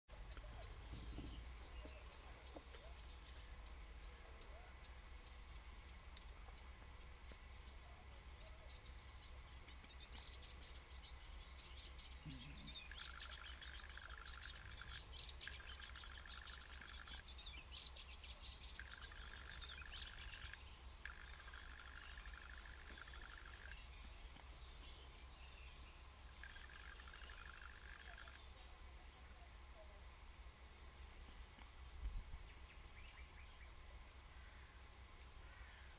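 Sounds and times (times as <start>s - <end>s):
cricket chirping: 0.1s - 35.9s
faint high bird twitters: 12.1s - 17.2s, 18.8s - 23.9s, 26.4s - 28.6s.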